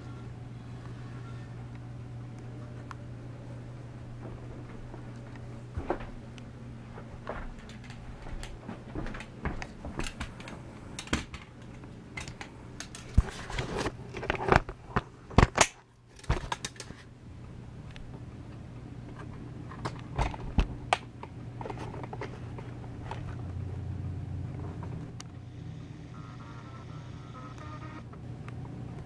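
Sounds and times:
steady low hum: 0.0 - 29.0
vacuum cleaner parts rattling: 21.6 - 23.4.

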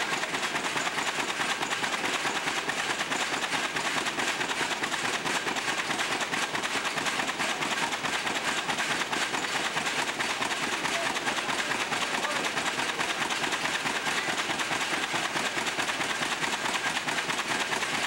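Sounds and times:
paper tubes rattling on shaker: 0.0 - 18.0.

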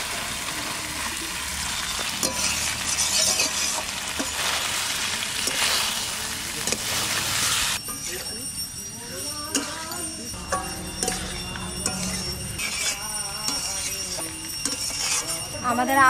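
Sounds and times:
potatoes sizzling in oil: 0.0 - 8.4, 10.4 - 16.0
metal spatula scraping pan: 1.6 - 6.0, 10.5 - 16.0.

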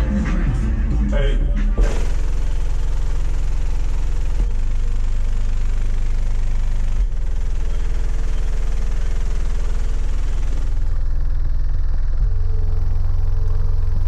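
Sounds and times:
deep bass tone from subwoofers: 0.0 - 14.0.

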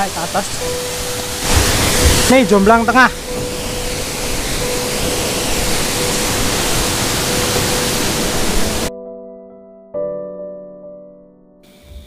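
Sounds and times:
waterfall roaring into pool: 0.0 - 8.9
soft piano music: 0.0 - 12.0.

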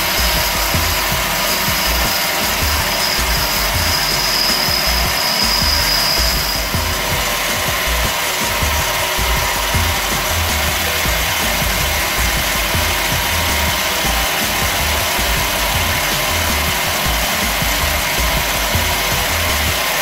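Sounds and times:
thin high whistle: 0.0 - 12.2
metal lathe running: 0.0 - 20.0
tool rubbing spinning metal: 0.0 - 20.0.

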